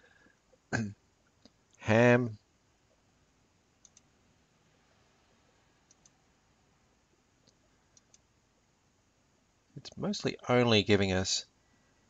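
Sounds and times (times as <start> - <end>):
computer mouse clicking: 3.8 - 4.1, 5.9 - 6.2, 7.4 - 8.3.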